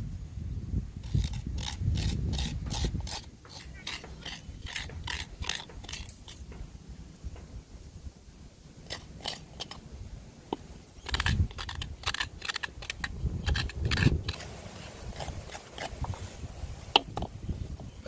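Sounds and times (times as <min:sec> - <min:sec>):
food scraping and crunching: 0:01.0 - 0:06.6, 0:08.8 - 0:09.9, 0:10.6 - 0:17.3.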